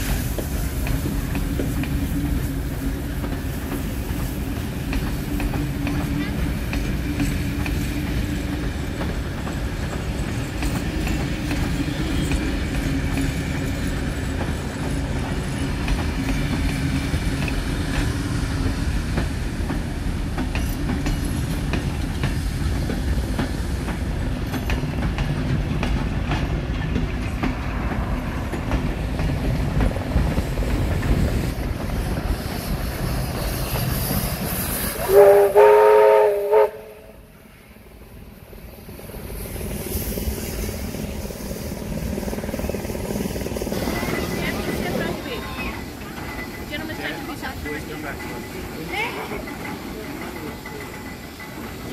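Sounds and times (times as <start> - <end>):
wheels clacking over rail joints: 0.0 - 35.1, 40.3 - 51.9
train carriages rumbling: 0.0 - 51.9
steam whistle blast: 34.9 - 37.2.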